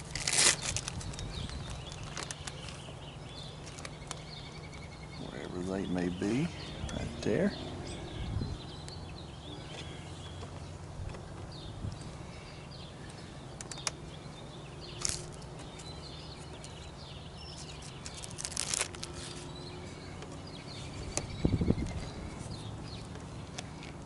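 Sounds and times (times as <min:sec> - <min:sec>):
plastic film crinkling: 0:00.0 - 0:02.8, 0:17.6 - 0:19.5.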